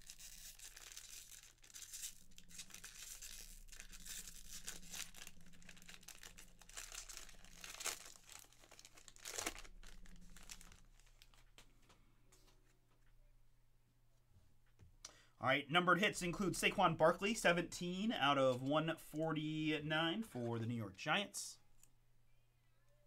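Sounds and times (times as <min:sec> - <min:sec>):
foil pack crinkling and tearing: 0:00.0 - 0:11.6.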